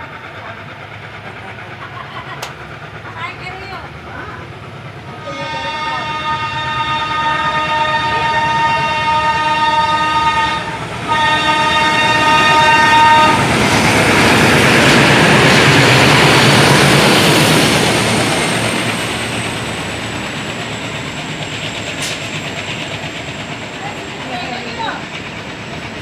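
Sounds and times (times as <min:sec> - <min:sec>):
diesel locomotive passing: 0:00.0 - 0:26.0
locomotive horn: 0:05.2 - 0:13.6
freight wagons rolling over rails: 0:10.9 - 0:26.0.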